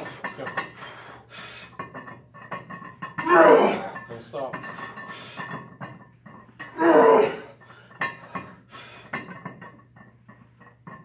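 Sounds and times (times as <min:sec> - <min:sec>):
man breathing hard: 0:00.8 - 0:01.8, 0:07.4 - 0:09.2.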